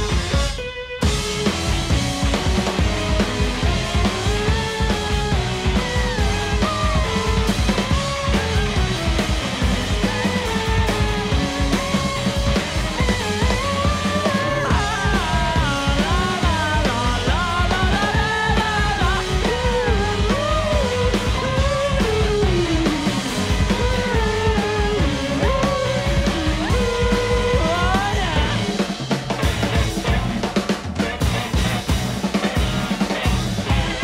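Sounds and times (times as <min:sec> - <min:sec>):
live rock band playing: 0:00.0 - 0:34.0
person singing: 0:13.4 - 0:28.8.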